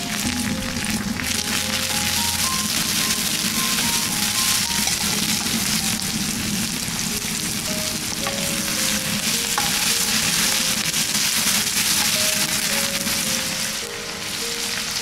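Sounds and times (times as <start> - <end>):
vegetables sizzling in oil: 0.0 - 15.0
wooden spoon stirring: 8.2 - 12.8.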